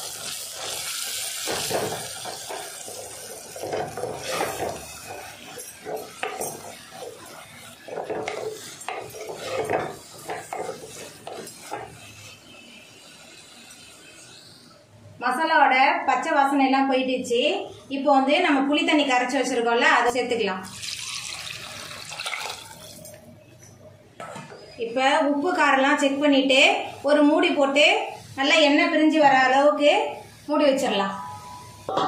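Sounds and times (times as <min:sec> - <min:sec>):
masala frying in oil: 0:00.0 - 0:16.2, 0:18.6 - 0:23.2, 0:25.0 - 0:32.0
wooden spoon scraping clay pot: 0:01.7 - 0:12.0.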